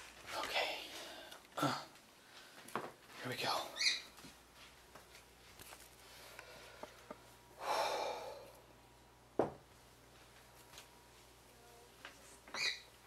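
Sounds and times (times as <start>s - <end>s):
breathy exhale: 7.6s - 8.6s.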